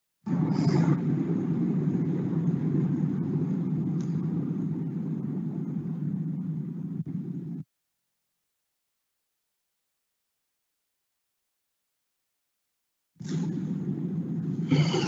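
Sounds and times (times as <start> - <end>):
low rumbling noise: 0.2 - 7.6, 13.2 - 15.0.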